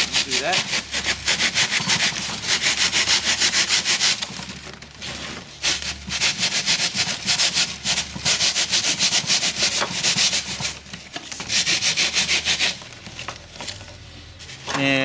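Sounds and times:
saw blade cutting foam: 0.0s - 4.4s, 5.6s - 10.8s, 11.4s - 12.8s.

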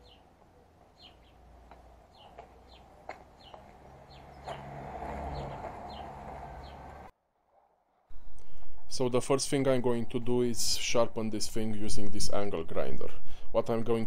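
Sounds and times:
small bird chirping: 0.0s - 4.7s, 5.3s - 7.0s.

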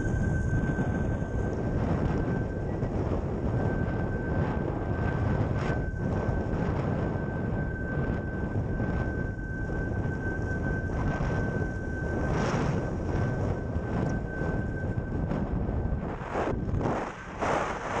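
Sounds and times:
thin high whistle: 0.0s - 18.0s
wind buffeting microphone: 0.0s - 18.0s.

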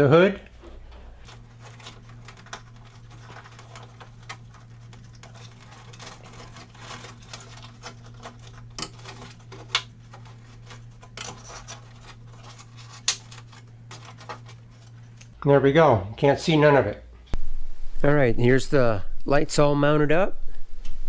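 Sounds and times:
steady low hum: 0.0s - 21.0s
wire bundle rustling and scraping: 0.6s - 15.3s.

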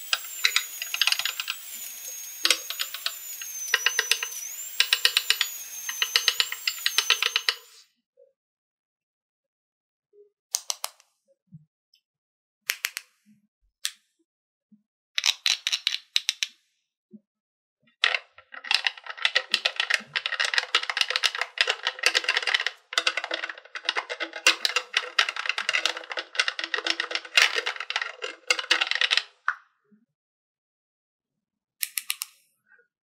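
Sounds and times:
plastic toy bottle clicking: 0.0s - 1.6s, 2.4s - 7.6s, 10.5s - 11.1s, 15.2s - 16.6s, 18.0s - 29.6s, 31.8s - 32.4s
toy toothbrush scrubbing plastic: 0.0s - 7.8s, 18.0s - 29.4s.

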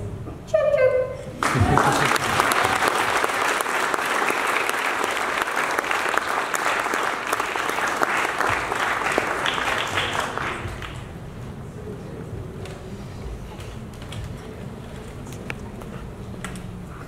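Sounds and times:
audience applauding: 1.4s - 11.2s.

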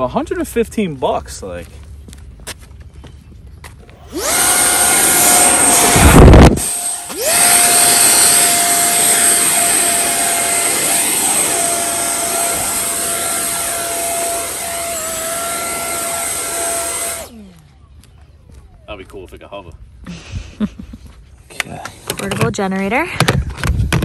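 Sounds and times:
electric ducted fan whine: 3.9s - 17.7s
loud rushing blast: 4.2s - 17.3s.

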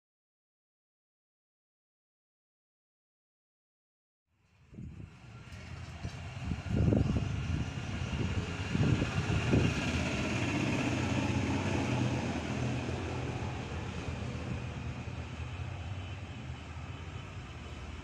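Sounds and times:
distant engine humming: 5.2s - 18.0s.

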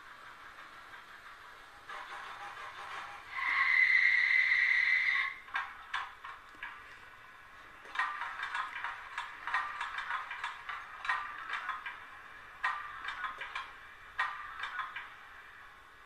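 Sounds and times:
wheels ticking over rail joints: 0.0s - 16.0s
model locomotive squeal: 1.9s - 5.4s.

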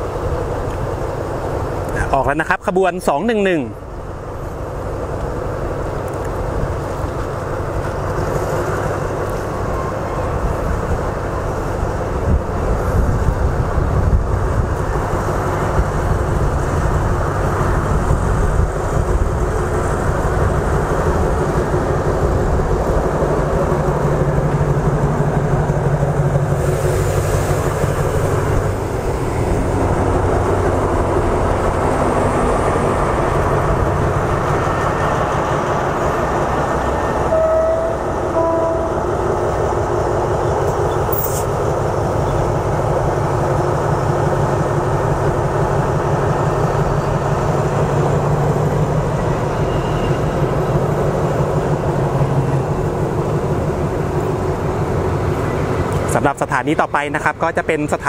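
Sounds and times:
diesel locomotive engine under load: 0.0s - 58.0s.

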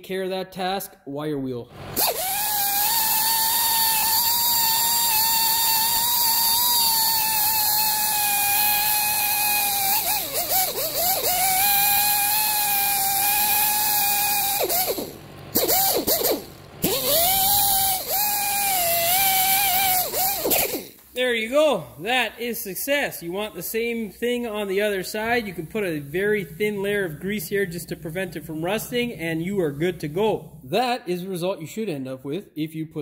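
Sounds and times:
wire wheel brush scrubbing metal: 1.8s - 21.0s.

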